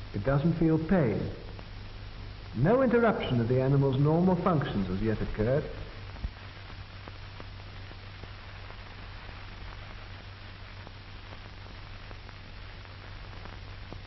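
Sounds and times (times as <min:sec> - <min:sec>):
film soundtrack hiss: 0:00.0 - 0:14.0
low mains hum: 0:00.0 - 0:14.0
faint crackling clicks: 0:01.4 - 0:01.9, 0:06.0 - 0:14.0.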